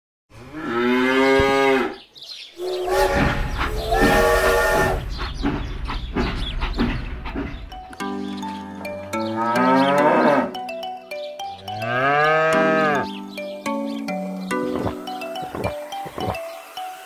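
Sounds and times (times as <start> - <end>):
cows mooing: 0.4 - 2.0, 2.6 - 5.0, 9.1 - 10.6, 11.6 - 13.1.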